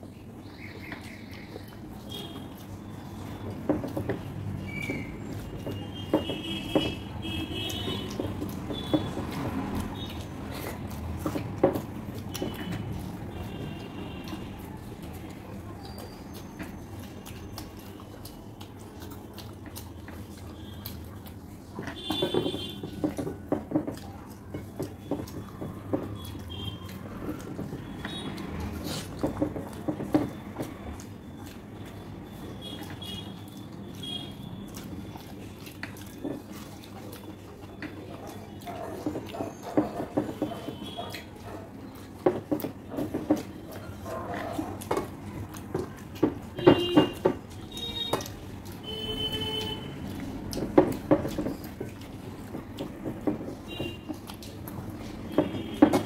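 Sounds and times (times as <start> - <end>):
chewing and lip-smacking: 0.0 - 56.0
fingers on ceramic plates: 0.8 - 56.0.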